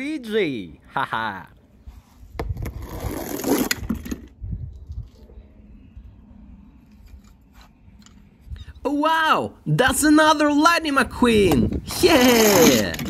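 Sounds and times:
toy car rattling down plastic slide: 12.1s - 13.0s.

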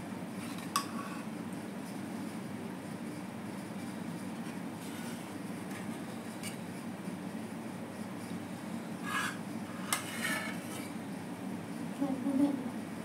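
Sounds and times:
steady low hum: 0.0s - 13.0s
metal spoon scraping a pot: 9.0s - 10.9s.

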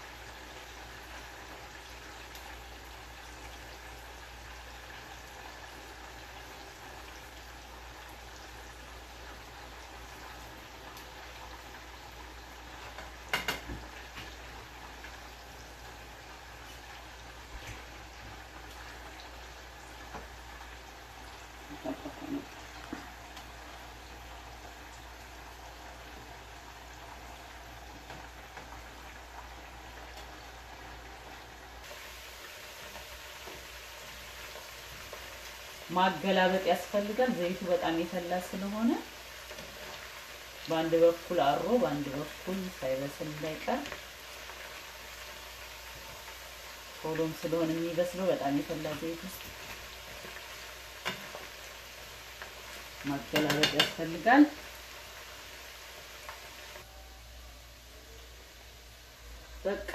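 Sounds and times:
meat sizzling in hot oil: 0.0s - 59.9s
metal tongs clattering on pan: 53.3s - 54.0s.

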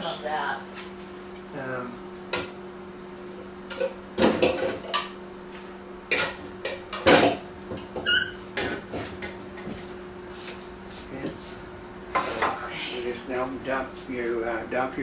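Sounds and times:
dishes clattering: 3.7s - 5.1s, 6.1s - 7.9s.

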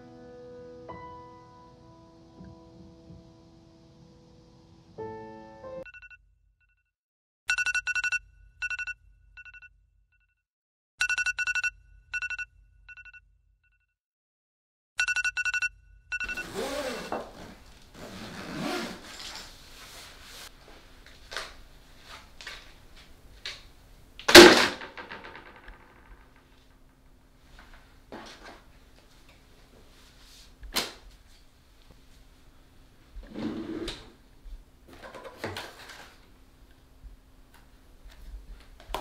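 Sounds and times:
phone ringtone beeping: 7.5s - 9.7s, 11.0s - 13.1s, 15.0s - 17.1s
rustling and handling noise: 16.3s - 23.8s, 27.3s - 32.4s, 34.9s - 36.9s.

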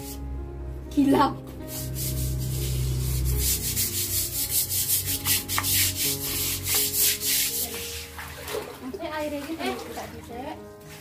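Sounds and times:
scrub brush scrubbing concrete: 1.7s - 8.3s.

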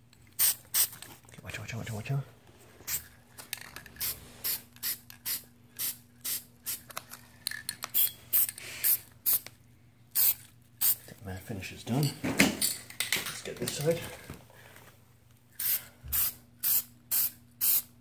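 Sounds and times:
aerosol spray can hissing: 0.4s - 0.9s, 10.2s - 11.0s, 15.6s - 17.9s.

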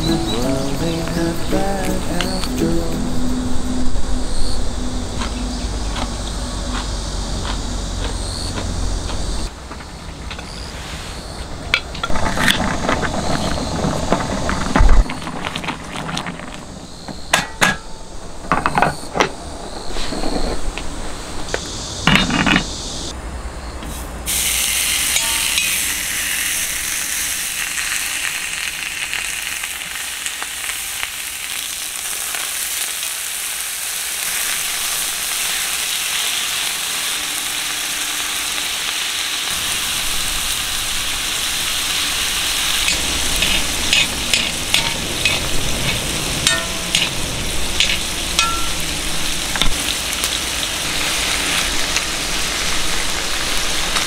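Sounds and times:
food sizzling on griddle: 0.0s - 3.2s, 23.9s - 54.0s
spatula scraping pan: 42.9s - 48.8s.

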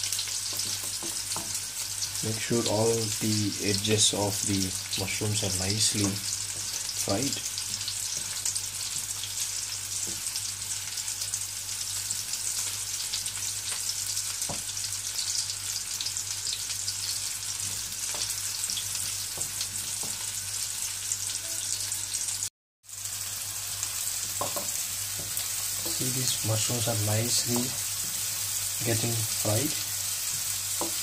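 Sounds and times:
mushrooms sizzling in hot oil: 0.0s - 31.0s
spatula knocking on pan: 0.5s - 1.6s, 14.4s - 14.7s, 24.3s - 26.0s.

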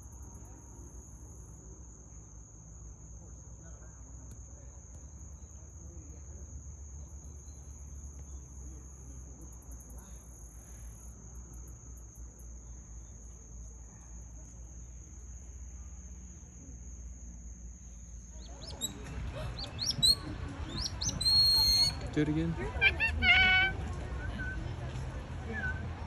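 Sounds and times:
fast pulsing insect call: 0.0s - 23.7s.

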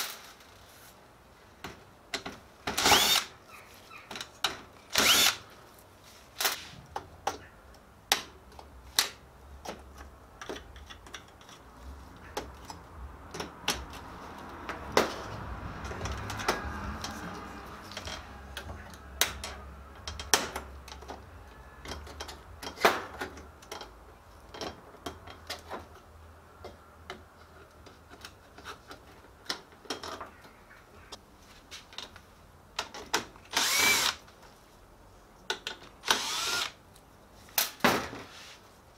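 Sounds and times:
cordless drill running: 2.8s - 3.3s, 5.0s - 5.4s, 33.5s - 34.2s, 36.0s - 36.8s.

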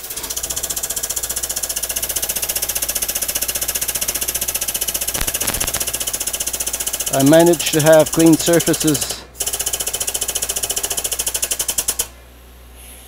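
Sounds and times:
air pump pulsing: 0.0s - 12.1s
sharp clicks: 5.1s - 6.1s.

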